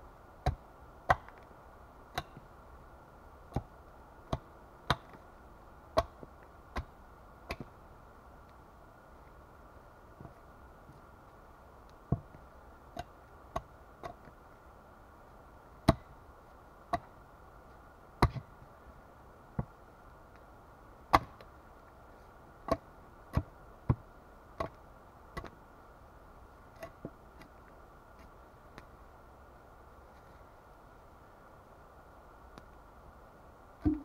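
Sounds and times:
axe chopping wood: 21.1s - 21.4s.

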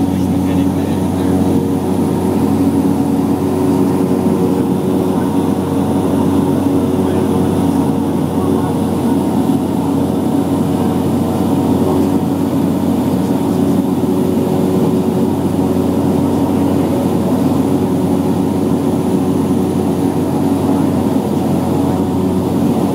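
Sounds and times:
light aircraft engine drone: 0.0s - 22.9s.

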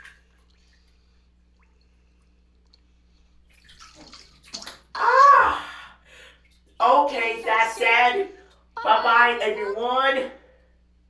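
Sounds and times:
water sloshing in bathtub: 0.0s - 5.8s.

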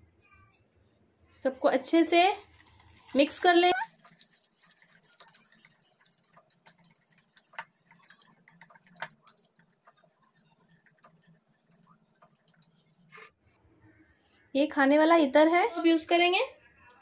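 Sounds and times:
whisk scraping glass bowl: 3.5s - 13.3s.

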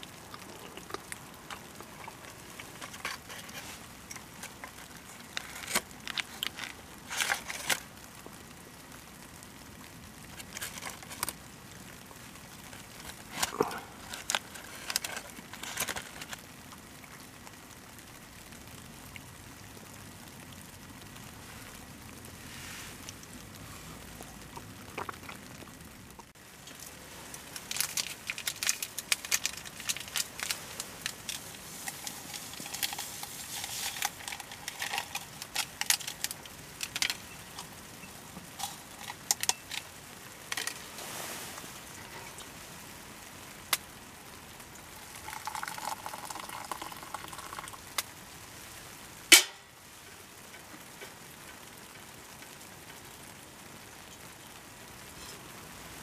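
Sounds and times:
faint low sizzle: 0.0s - 56.0s
liquid pouring into a glass: 44.9s - 47.8s.

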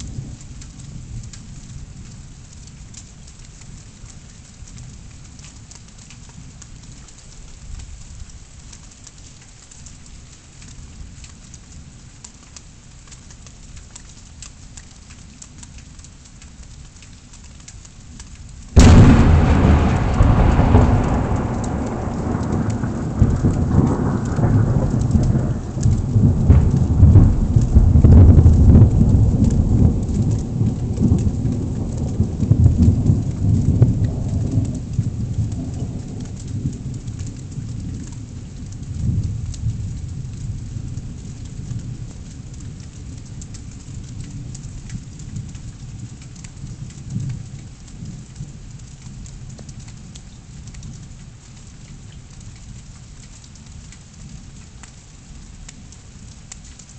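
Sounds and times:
rain falling: 0.0s - 56.9s
thunder rumbling: 18.8s - 37.5s.

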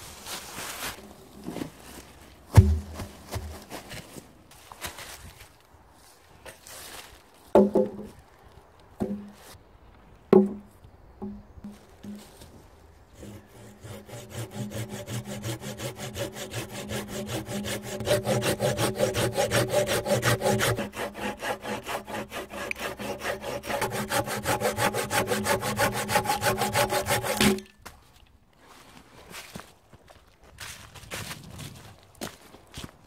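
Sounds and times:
pruning saw cutting branch: 13.2s - 27.7s.

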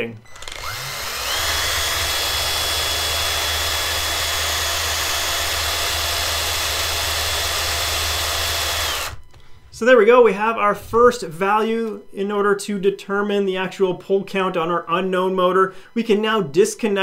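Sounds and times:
cordless drill running: 0.2s - 9.4s
motor spinning with high whine: 0.2s - 9.4s.

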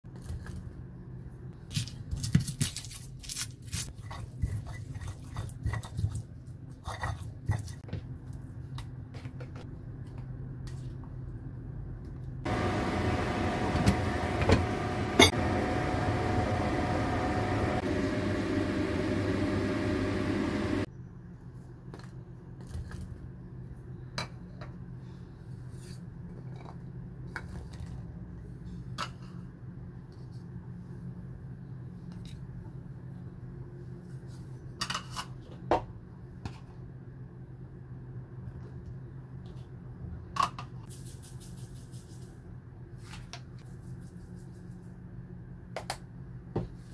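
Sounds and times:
steady low hum: 9.7s - 20.9s
loud steady whir: 12.5s - 20.9s.

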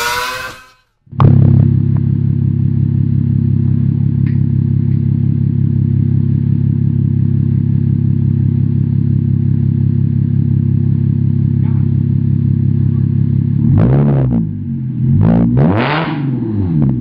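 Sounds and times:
car engine deep idle: 1.8s - 13.6s.

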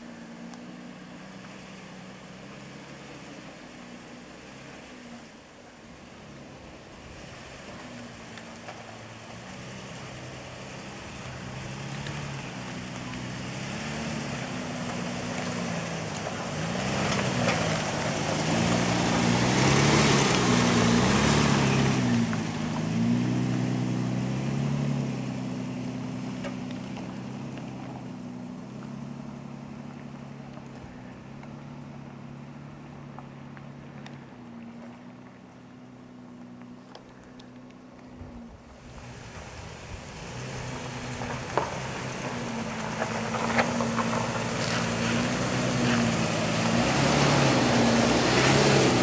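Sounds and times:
pickup truck engine hum: 0.0s - 49.0s
tyres on dirt: 0.0s - 49.0s.

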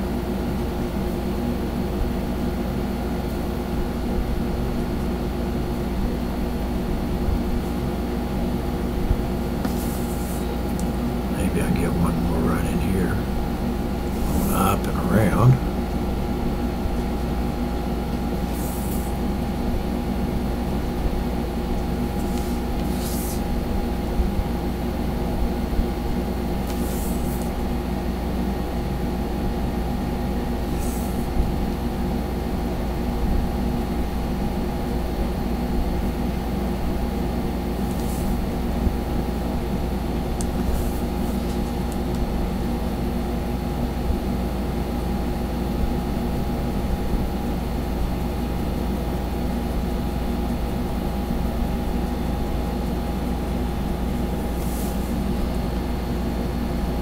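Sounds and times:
low machine hum: 0.0s - 57.0s
marker scratching on paper: 9.6s - 10.5s, 18.5s - 19.2s, 22.2s - 23.5s, 26.7s - 27.5s, 30.7s - 31.3s, 37.8s - 38.4s, 40.6s - 41.7s.

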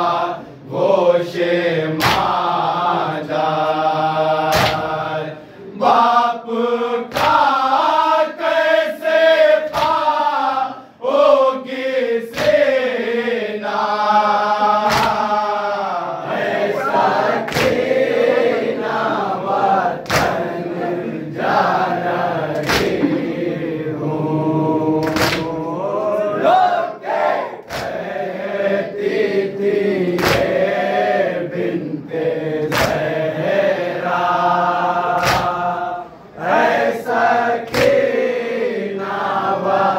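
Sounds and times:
male chorus chanting: 0.0s - 39.9s
palms slapping chests: 14.8s - 15.3s, 20.0s - 20.5s, 22.6s - 23.4s, 35.2s - 35.6s.

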